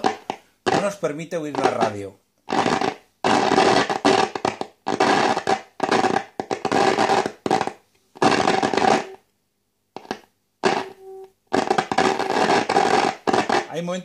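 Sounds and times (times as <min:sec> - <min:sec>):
radio loudspeaker noisy bursts: 0:00.0 - 0:03.9, 0:08.2 - 0:09.2, 0:10.6 - 0:13.9
steady tone: 0:10.6 - 0:11.4.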